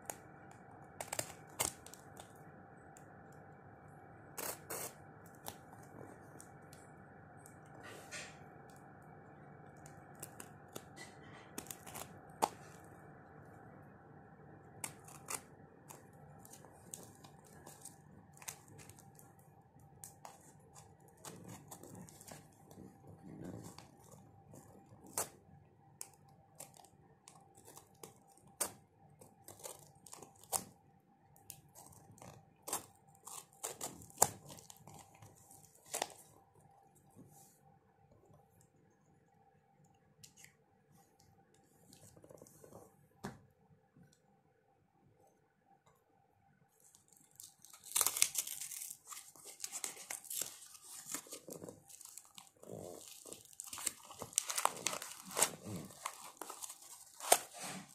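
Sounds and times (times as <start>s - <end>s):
tape tearing clicks and crackles: 0.9s - 2.4s, 4.3s - 6.7s, 9.7s - 12.9s, 14.8s - 19.4s, 26.0s - 30.8s, 31.5s - 36.2s, 47.1s - 57.9s.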